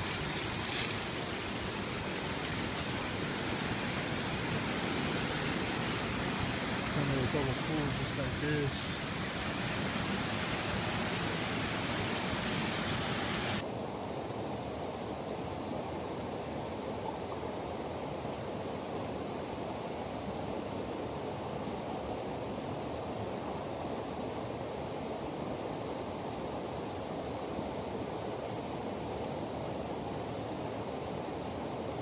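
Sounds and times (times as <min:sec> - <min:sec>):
river water rushing over rocks: 0:00.0 - 0:14.2.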